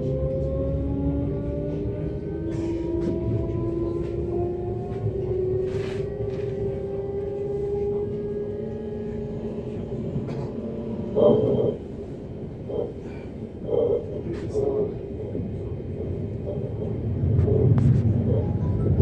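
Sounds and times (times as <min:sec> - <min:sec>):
electric train drive whining: 0:00.0 - 0:18.9
low running rumble: 0:00.0 - 0:19.0.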